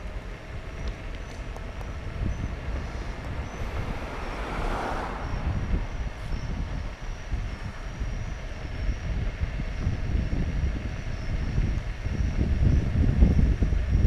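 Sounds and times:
scooter tyres rolling on asphalt: 0:00.0 - 0:14.0
wind rumble on microphone: 0:00.0 - 0:14.0.

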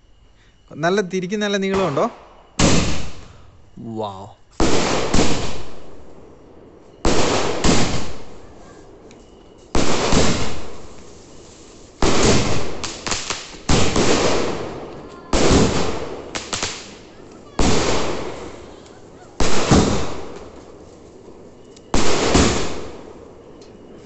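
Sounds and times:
aerial fireworks bursting: 0:01.8 - 0:03.2, 0:04.6 - 0:06.0, 0:07.0 - 0:09.0, 0:09.7 - 0:20.9, 0:21.9 - 0:23.5.

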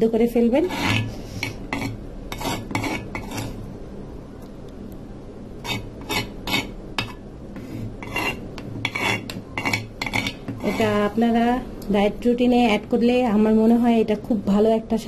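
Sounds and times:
cutlery scraping on plate: 0:00.7 - 0:03.6, 0:05.6 - 0:11.0.

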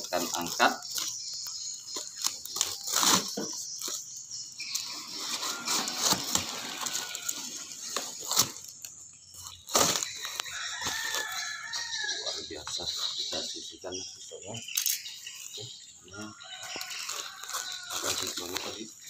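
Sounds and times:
cardboard tearing and crackling: 0:00.0 - 0:12.1, 0:16.5 - 0:18.8.

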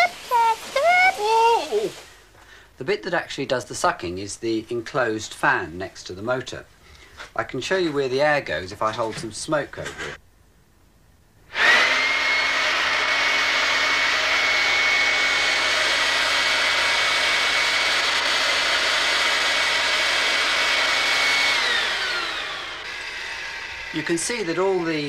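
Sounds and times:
vacuum cleaner motor whining: 0:11.5 - 0:25.0.

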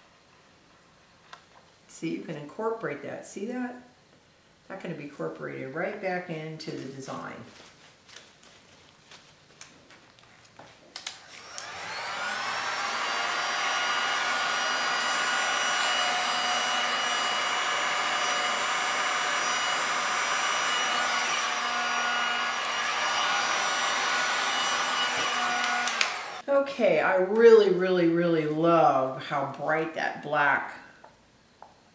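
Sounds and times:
heat gun whining and blowing air: 0:11.2 - 0:26.5.

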